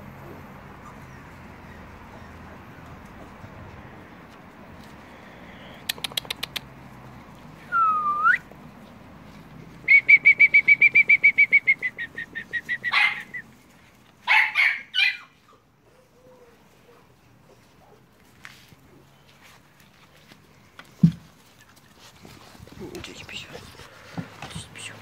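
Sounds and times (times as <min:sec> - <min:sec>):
swooping whistle: 0:07.7 - 0:08.4, 0:09.9 - 0:12.9
puppy barking: 0:12.8 - 0:13.4, 0:14.2 - 0:15.4.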